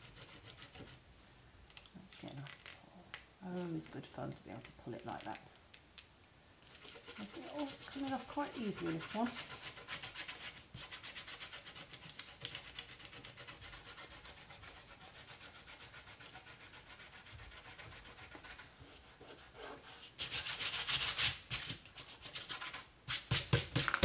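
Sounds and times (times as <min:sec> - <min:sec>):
fingertips rubbing paper scratchily: 0:06.7 - 0:22.8.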